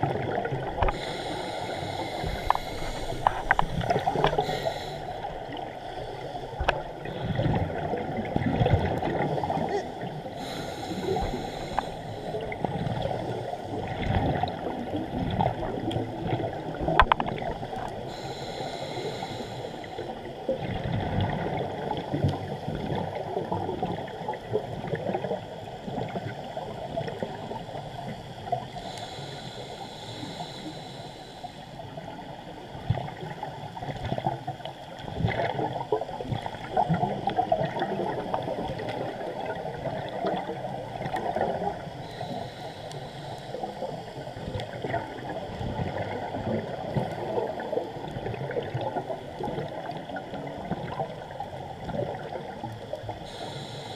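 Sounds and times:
underwater regulator bubbling: 0.0 - 13.2.

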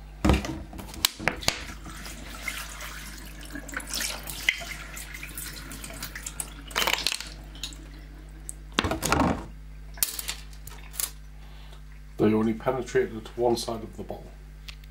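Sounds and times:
plastic bottles crinkling: 6.7 - 7.8.

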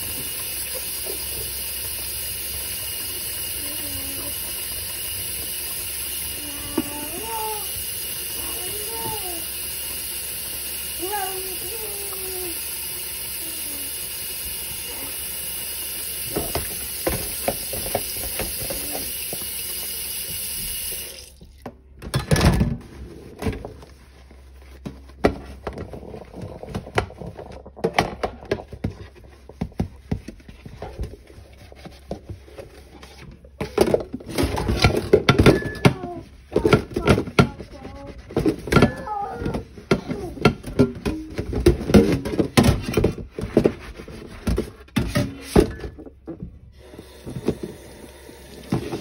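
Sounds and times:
sponge scrubbing plastic container: 0.0 - 21.6, 22.8 - 35.2, 36.0 - 40.7
tap running into sink: 15.4 - 21.8, 46.8 - 49.0.

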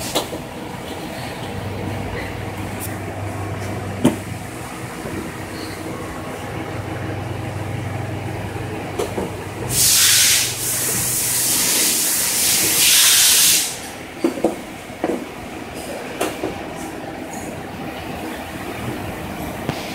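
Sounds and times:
conveyor belt humming: 0.0 - 19.9
loud hisses: 9.7 - 13.8.

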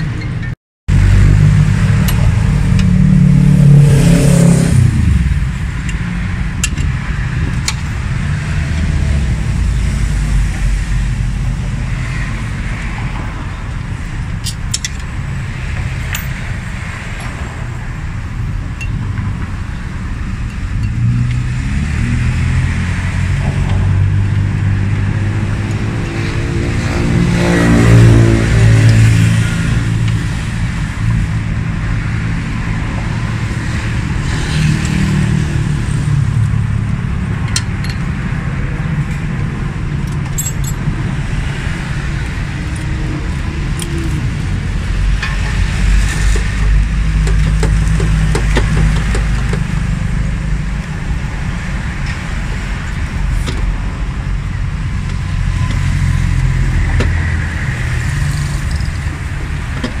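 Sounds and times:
metallic clicks of handled parts: 40.0 - 40.9.

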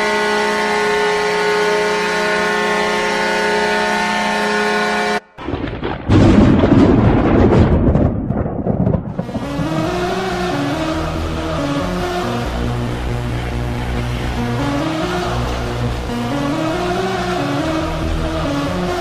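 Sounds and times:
goal horn chord: 0.0 - 5.4, 9.2 - 19.0
loud rumbling burst: 5.4 - 19.0
goal song music: 9.1 - 19.0.

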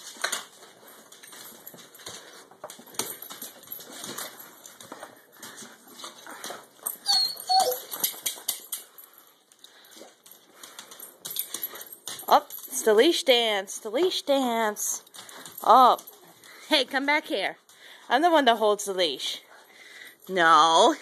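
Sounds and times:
dog claws clicking on tile floor: 0.0 - 13.4, 14.0 - 17.8
dog whining: 6.9 - 8.2.

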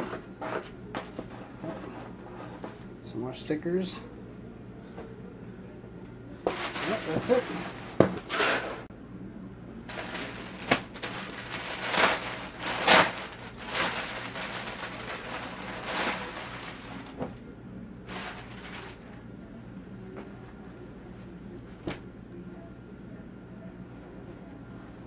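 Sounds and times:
plastic bags crinkling: 6.5 - 7.8, 9.9 - 17.3, 18.1 - 19.2.

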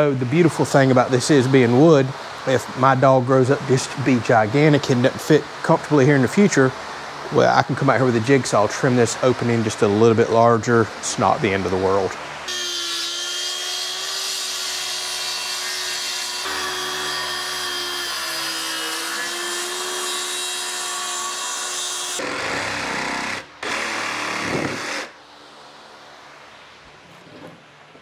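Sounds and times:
circular saw cutting plywood: 12.5 - 25.2
jigsaw cutting plywood: 12.5 - 25.2.

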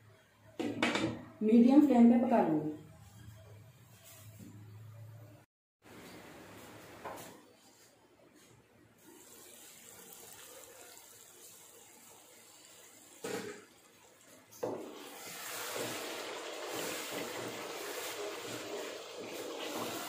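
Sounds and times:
food bubbling and sizzling in a pot: 9.0 - 20.0.

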